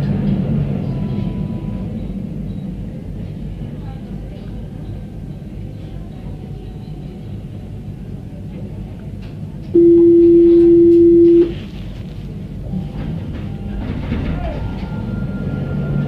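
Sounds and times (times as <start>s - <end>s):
low rumble of tram: 0.0s - 16.0s
electronic warning beep: 9.8s - 11.6s.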